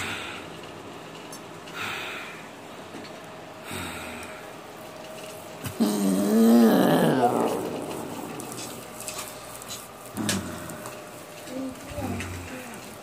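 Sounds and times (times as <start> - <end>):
man breathing out through nose: 1.7 - 2.5
man groaning in pain: 5.8 - 8.4.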